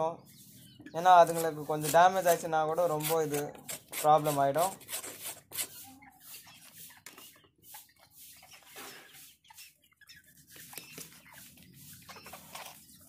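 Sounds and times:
hen clucking: 0.3 - 13.0
knife scraping fish on wooden board: 3.0 - 5.8.

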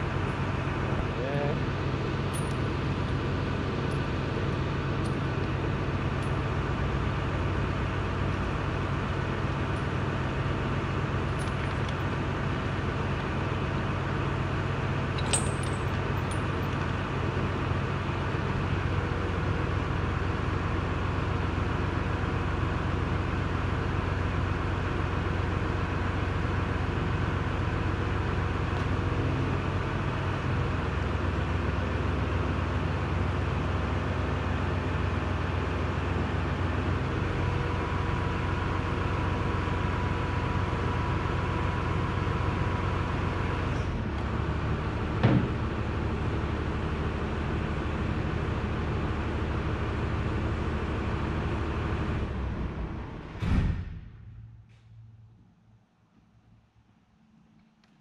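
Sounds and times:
metallic chain clinks: 15.2 - 16.8.

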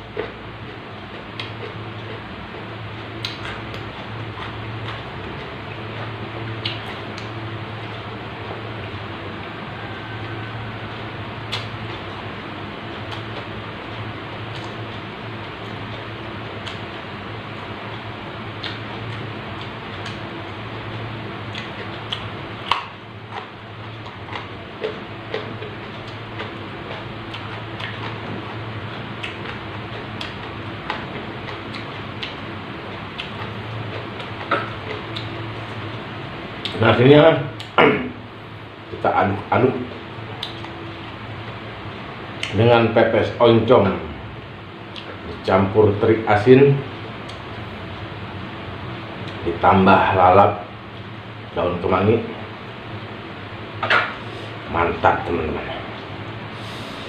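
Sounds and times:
chewing raw vegetables: 0.0 - 36.8, 39.4 - 42.6
steady hiss and low hum: 0.0 - 57.0.

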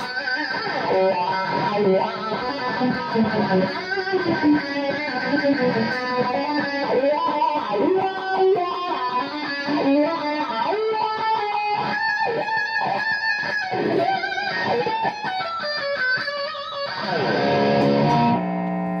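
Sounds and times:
electric guitar metal solo: 0.0 - 19.0
guitar chord ringing: 12.8 - 19.0.

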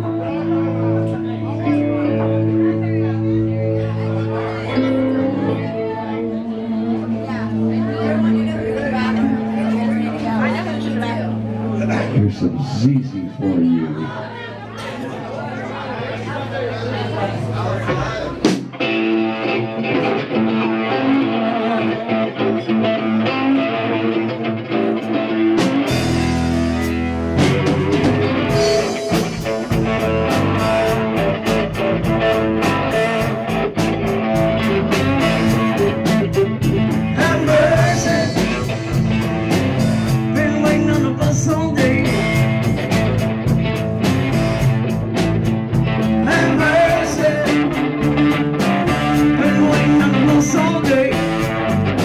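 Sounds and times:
electric guitar: 0.0 - 14.9, 16.9 - 52.0
bass guitar: 0.0 - 52.0
keyboard: 0.0 - 52.0
drum kit and cymbals: 25.6 - 41.2, 41.8 - 52.0.

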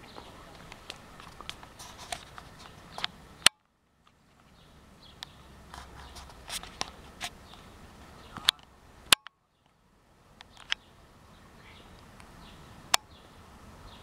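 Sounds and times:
footsteps in undergrowth: 0.0 - 3.2, 4.1 - 8.7
leaves and stems rustling: 0.0 - 9.8.

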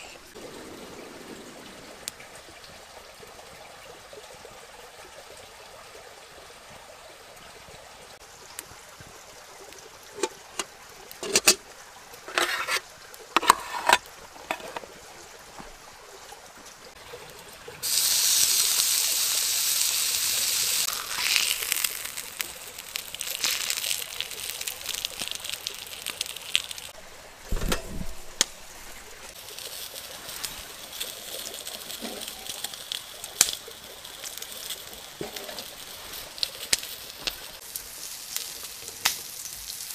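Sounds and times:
bacon sizzling on a grill: 8.2 - 15.4, 17.0 - 39.9.

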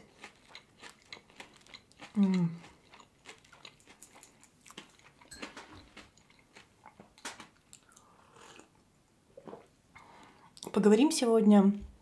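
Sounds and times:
chewing flaky pastry: 0.0 - 8.8
sip of tea: 7.9 - 8.7.

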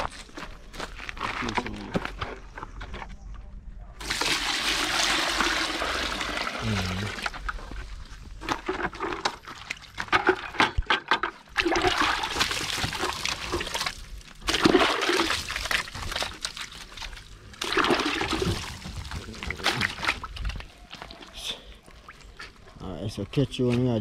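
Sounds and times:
water splashing into plastic bucket: 4.0 - 7.5, 8.4 - 21.3.

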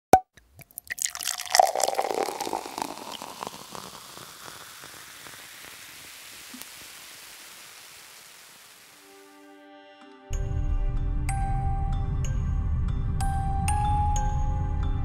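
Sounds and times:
crackling fizzing hiss: 0.6 - 9.4.

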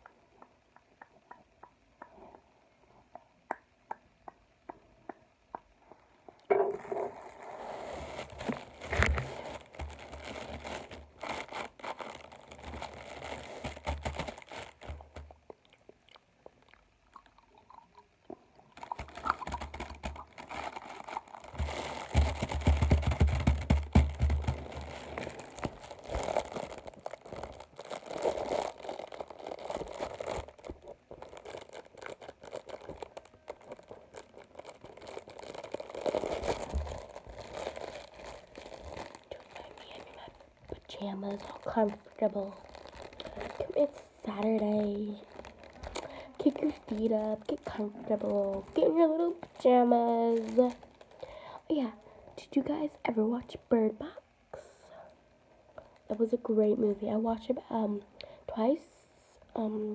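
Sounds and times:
chewing and crunching chocolate: 8.4 - 51.6.

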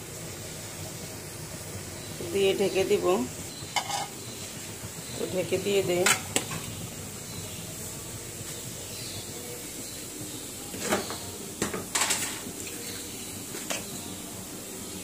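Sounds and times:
gas stove burners hissing: 0.0 - 15.0
cookware scraping and clattering: 3.8 - 4.2, 10.8 - 12.5.

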